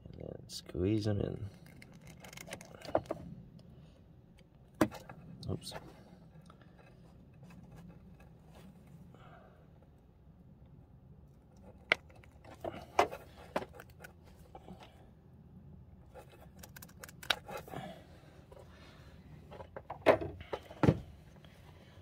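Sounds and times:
clicks and rattling of wiring work: 1.3s - 3.7s, 16.2s - 17.7s.

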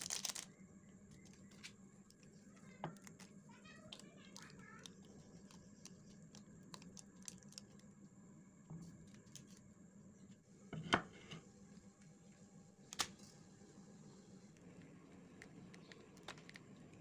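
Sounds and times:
plastic sachets rustling: 0.0s - 0.5s, 3.9s - 7.8s.

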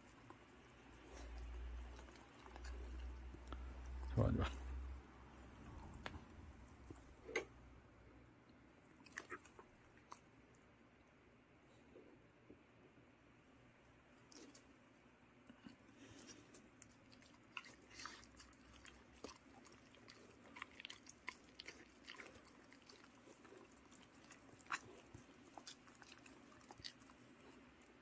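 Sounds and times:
dogs chewing and licking: 0.0s - 4.4s, 15.6s - 28.0s.

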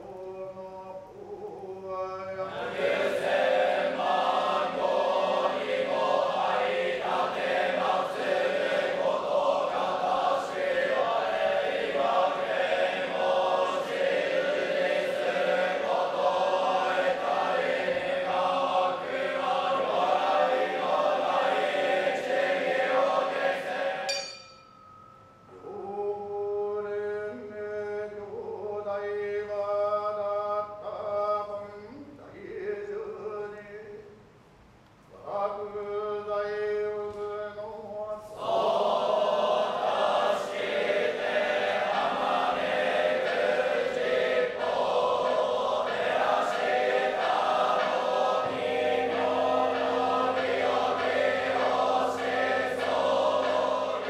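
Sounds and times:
monks chanting in unison: 0.0s - 24.3s, 35.5s - 54.0s.

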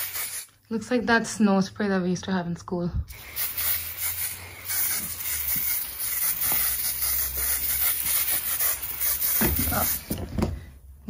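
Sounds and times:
aerosol spray hissing: 0.0s - 0.5s, 3.1s - 10.2s.

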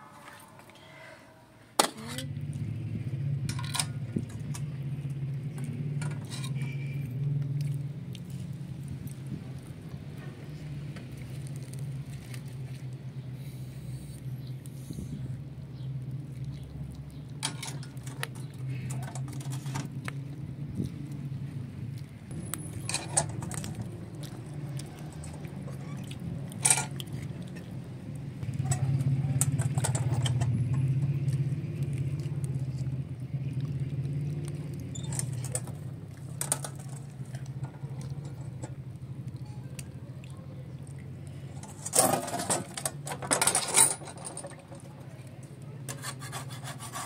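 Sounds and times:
metal griddle clinks and knocks: 3.5s - 4.6s, 41.6s - 44.7s
wood fire crackling: 7.1s - 13.3s, 20.9s - 40.0s.

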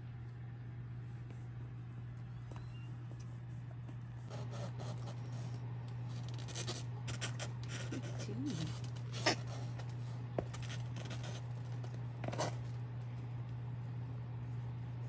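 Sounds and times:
steady low hum: 0.0s - 15.0s
kittens' claws scratching: 4.3s - 12.8s.

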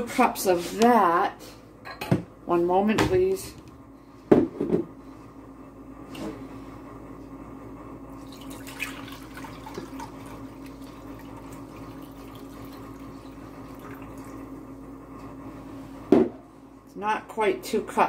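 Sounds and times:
steady low hum: 0.0s - 18.0s
liquid pouring into glass: 8.2s - 14.4s.

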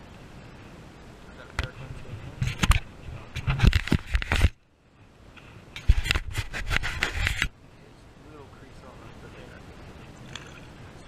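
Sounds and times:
camera handling scrapes and knocks: 2.4s - 4.6s, 5.4s - 7.5s, 10.2s - 10.7s.

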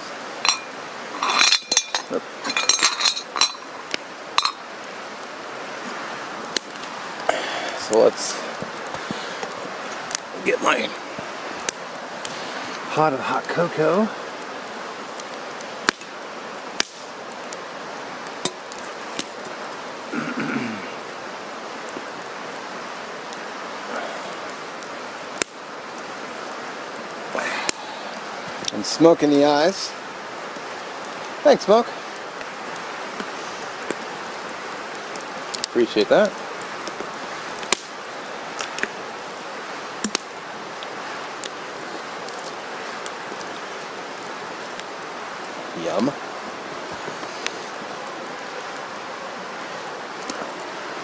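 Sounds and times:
logs popping: 0.0s - 4.7s, 15.1s - 17.6s, 18.3s - 20.4s, 25.3s - 25.6s, 33.1s - 39.0s, 40.0s - 43.6s
campfire crackling: 0.0s - 51.0s
steady hiss: 0.0s - 51.0s
pot clinking against mug: 0.5s - 3.7s, 4.4s - 4.6s.

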